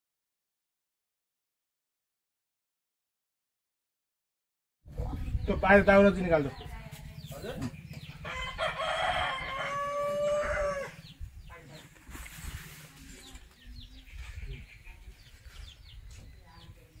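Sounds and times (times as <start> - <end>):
rooster crowing: 8.2 - 11.1.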